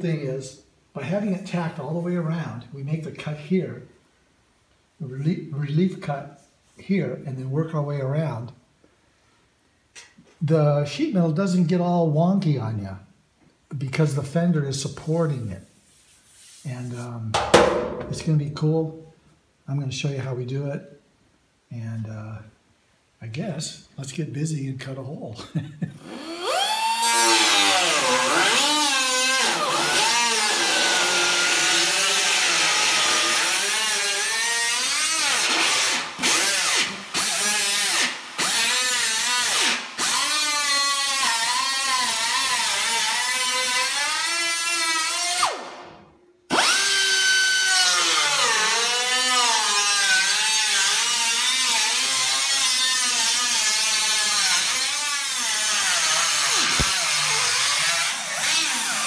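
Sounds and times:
cutoff wheel cutting metal: 26.2 - 44.7, 46.5 - 59.0.

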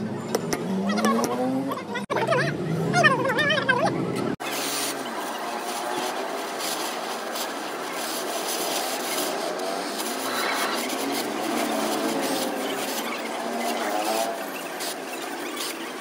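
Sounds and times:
gas torch flame hissing: 4.4 - 16.0.

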